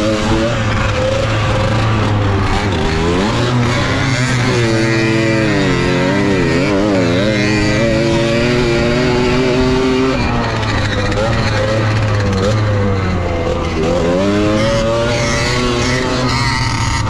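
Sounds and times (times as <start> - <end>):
moped two-stroke engine revving: 0.0 - 17.0.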